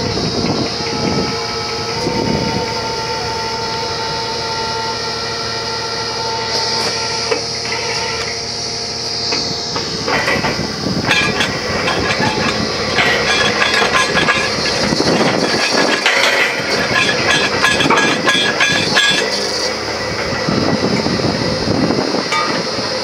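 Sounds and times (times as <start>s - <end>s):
drilling rig drone and whine: 0.0s - 23.0s
metallic rattling and clanking: 6.5s - 23.0s.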